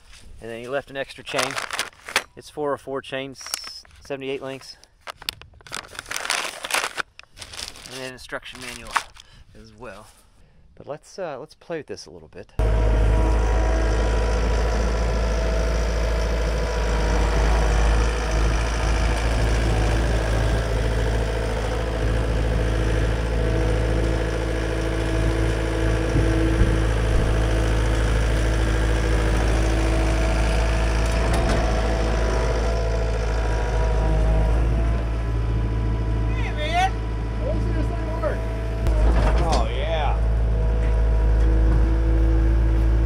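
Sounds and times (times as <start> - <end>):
diesel engines droning: 12.6 - 43.0.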